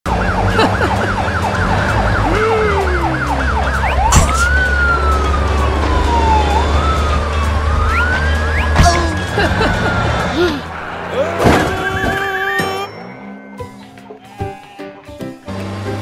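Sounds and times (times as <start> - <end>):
cartoon siren: 0.1 - 10.4
vehicle engine rumble: 0.1 - 14.1.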